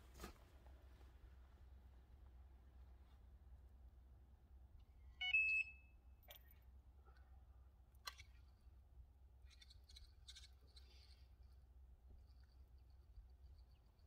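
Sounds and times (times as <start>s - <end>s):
electronic bite alarm beep: 5.2s - 5.9s.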